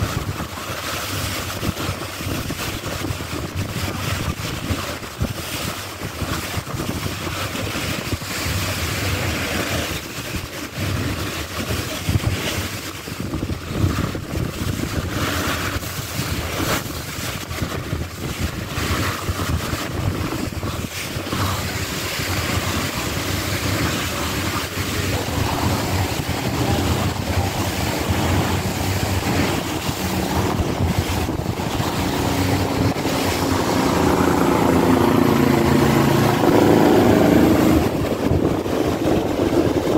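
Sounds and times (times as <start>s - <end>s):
water rushing past a hull: 0.0s - 39.9s
wind buffeting the microphone: 0.0s - 39.9s
low engine hum: 13.3s - 39.9s
pitched engine drone: 18.7s - 39.9s.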